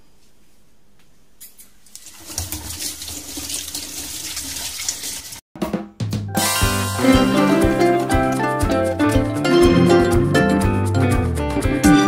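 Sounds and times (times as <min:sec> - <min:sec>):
tap water running into sink: 0:01.9 - 0:05.4.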